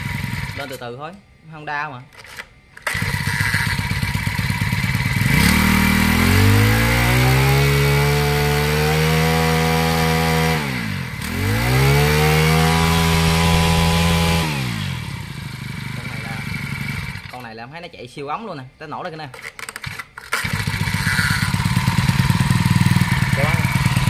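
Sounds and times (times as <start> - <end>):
brush cutter engine revving: 0.0 - 0.8, 2.3 - 17.5, 19.7 - 24.0.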